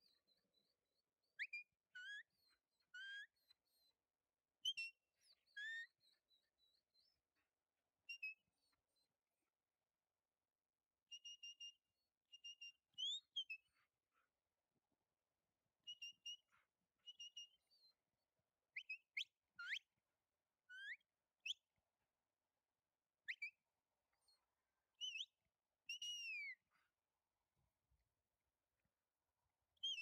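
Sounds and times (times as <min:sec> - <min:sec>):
upward-sweeping whistles: 0:00.0 - 0:04.0, 0:04.6 - 0:07.2, 0:18.8 - 0:20.0, 0:23.2 - 0:23.6, 0:24.2 - 0:26.9, 0:29.8 - 0:30.0
whistled pips: 0:23.3 - 0:23.6, 0:25.0 - 0:26.9, 0:29.8 - 0:30.0.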